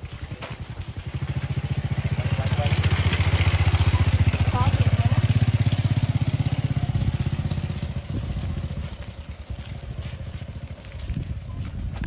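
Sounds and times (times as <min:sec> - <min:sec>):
small motorcycle engine pulling away: 0:00.0 - 0:11.9.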